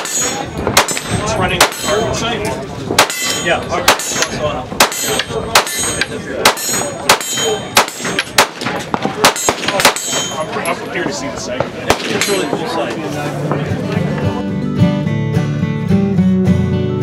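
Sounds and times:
pistol single shots: 0.0s - 2.0s, 3.0s - 10.2s, 11.8s - 12.4s.

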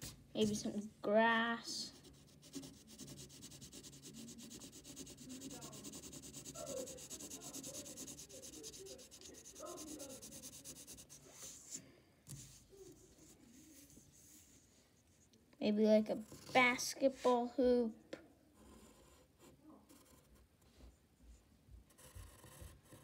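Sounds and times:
pencil scratching on paper: 1.8s - 14.5s, 18.6s - 20.4s, 21.9s - 23.0s.

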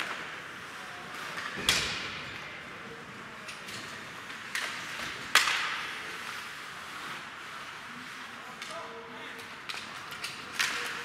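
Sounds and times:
hockey sticks and puck cracks: 0.0s - 0.5s, 3.5s - 6.7s, 8.5s - 11.0s.

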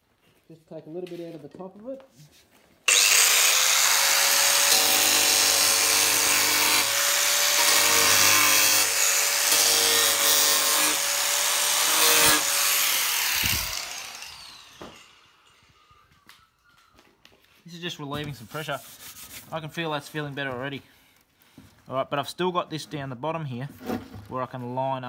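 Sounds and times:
angle grinder cutting fibreglass: 2.9s - 15.7s
grinder spinning down: 2.9s - 15.9s.

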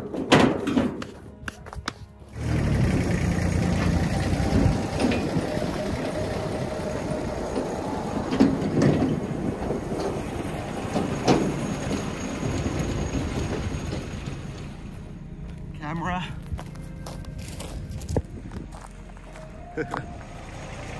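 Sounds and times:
metal trailer rattling and clanking: 0.0s - 1.3s, 2.4s - 20.9s
tractor diesel engine running: 2.1s - 20.9s.

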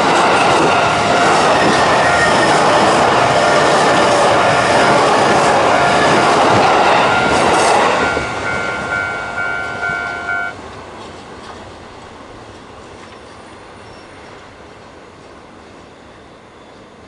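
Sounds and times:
crossing warning bell ringing: 0.0s - 10.6s
distant rail noise: 0.0s - 17.0s
train wheels rumbling on rail: 0.0s - 17.0s.

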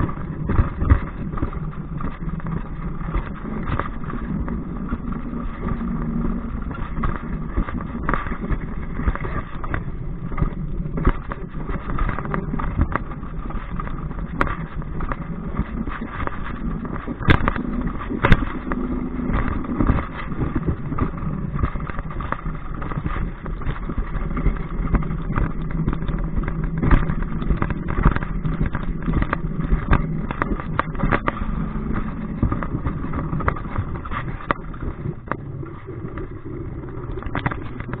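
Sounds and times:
coaster sled rumbling on rail: 0.0s - 38.0s
low hum: 0.0s - 38.0s.

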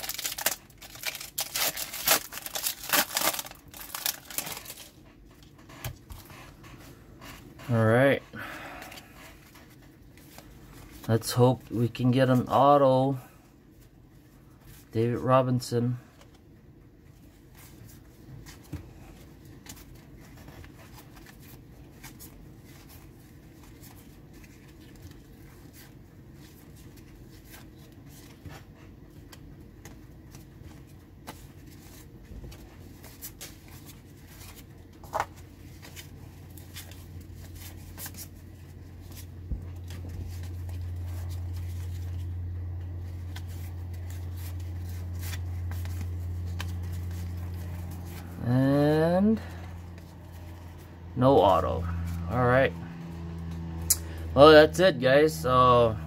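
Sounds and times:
low steady hum: 0.0s - 56.0s
trading cards being flipped: 39.0s - 48.4s.

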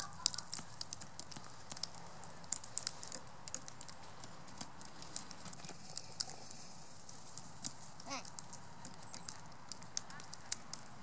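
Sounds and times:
crow beak cracking seeds: 0.0s - 11.0s.

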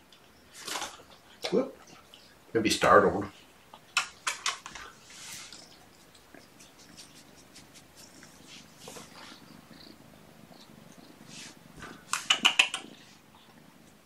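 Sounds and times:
kitten purring: 3.8s - 14.0s.

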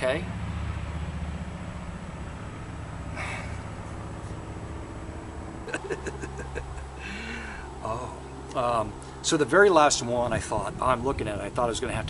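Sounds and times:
low background rumble: 0.0s - 12.0s
man's short breath: 7.0s - 7.7s.

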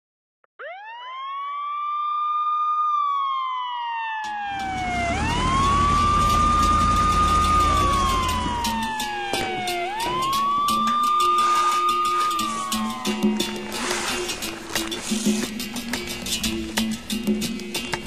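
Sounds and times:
fire engine siren wailing: 0.6s - 15.1s.

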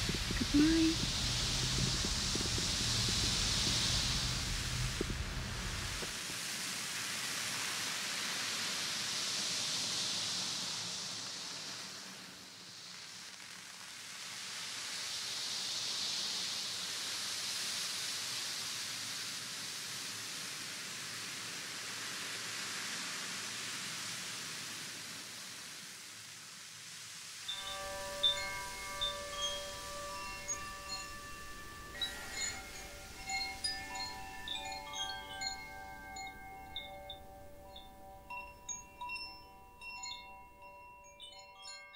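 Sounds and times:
ocean drum beads rolling: 0.0s - 6.1s, 27.5s - 40.2s
chimes ringing: 27.5s - 41.9s.

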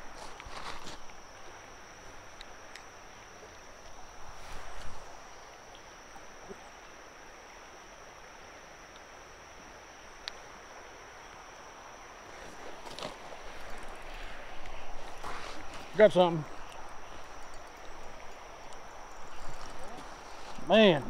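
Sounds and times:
flowing water: 0.0s - 21.0s
high-pitched insect drone: 0.0s - 21.0s
rustling: 12.3s - 20.7s.

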